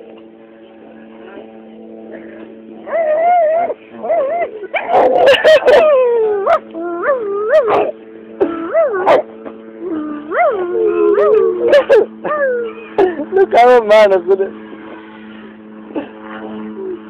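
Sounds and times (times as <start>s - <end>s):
dog yelping and howling: 2.8s - 13.0s.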